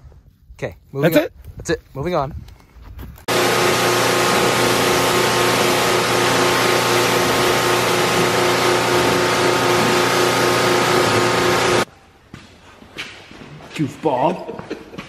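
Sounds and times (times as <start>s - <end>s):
pressure washer pump hum: 3.3s - 11.9s
water jet hissing: 3.3s - 11.9s.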